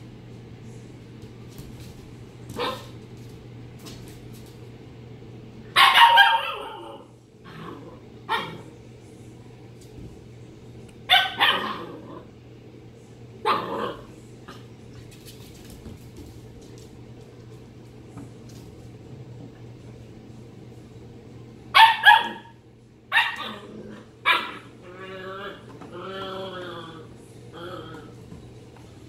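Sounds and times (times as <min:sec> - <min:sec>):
puppy barking and yipping: 0:05.8 - 0:07.0, 0:11.1 - 0:11.8, 0:21.8 - 0:22.5, 0:23.1 - 0:23.6.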